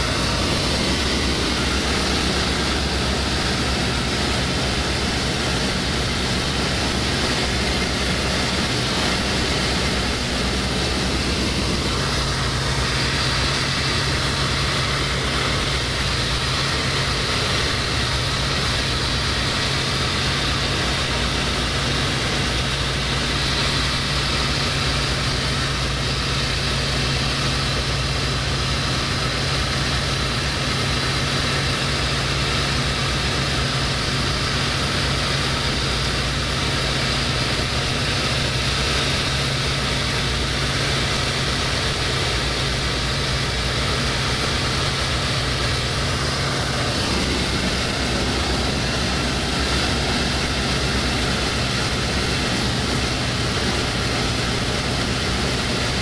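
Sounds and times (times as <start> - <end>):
propeller aircraft engine: 0.0 - 56.0
rush of air noise: 0.0 - 56.0.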